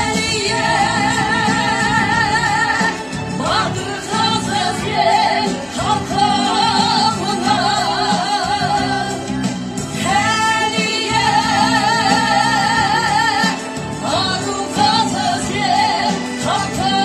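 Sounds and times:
instrumental accompaniment: 0.0 - 17.0
woman singing with vibrato: 0.0 - 17.0.

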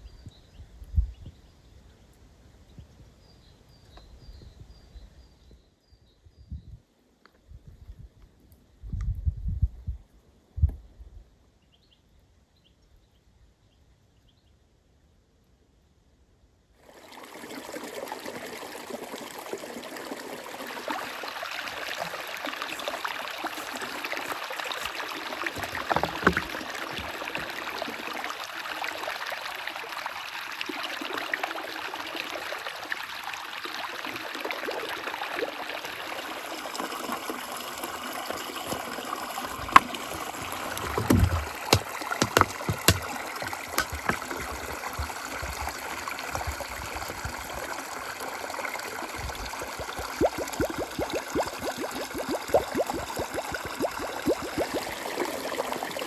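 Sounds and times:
forest stream running: 16.8 - 56.0
bottle knocking and splashing: 25.5 - 27.8, 39.6 - 47.5.

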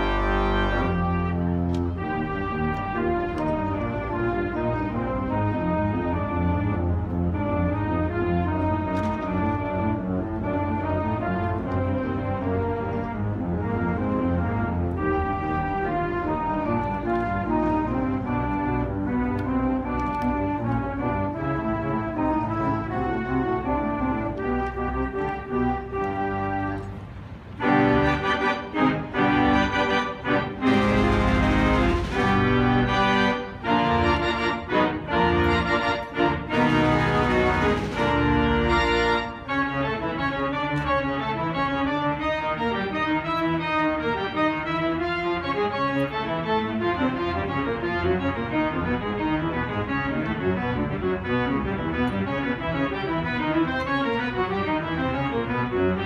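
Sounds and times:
pipe organ playing: 0.0 - 56.0.

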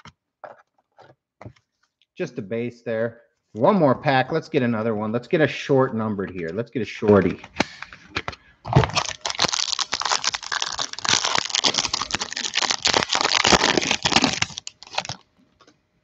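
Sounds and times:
plastic wrapper crinkling: 7.4 - 15.7.

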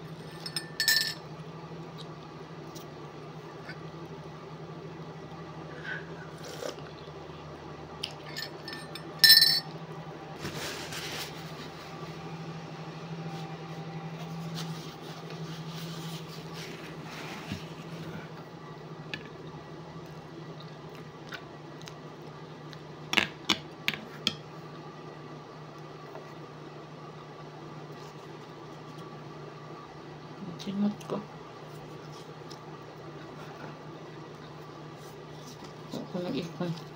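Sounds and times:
steady low hum: 0.0 - 36.9
spoon clinking in ceramic mug: 0.4 - 1.2, 8.3 - 9.7.

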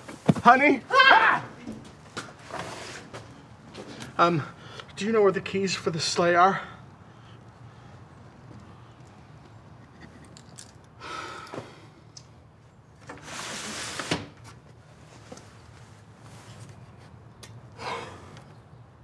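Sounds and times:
soft rustle: 14.9 - 17.1.

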